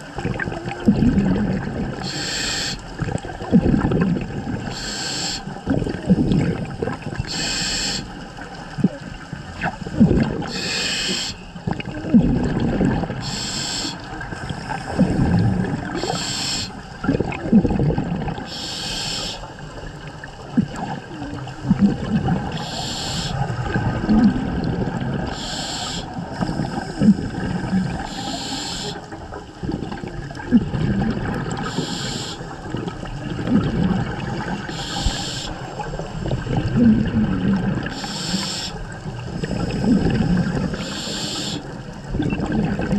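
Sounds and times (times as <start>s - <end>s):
exhaled bubbles gurgling: 0.0s - 42.9s
regulator inhalation hiss: 2.0s - 2.9s, 4.7s - 5.5s, 7.3s - 8.2s, 10.5s - 11.4s, 13.2s - 15.2s, 16.0s - 16.8s, 18.5s - 19.5s, 22.6s - 23.5s, 25.3s - 27.2s, 28.0s - 29.1s, 31.6s - 32.5s, 34.7s - 35.8s, 37.9s - 39.9s, 40.6s - 41.7s.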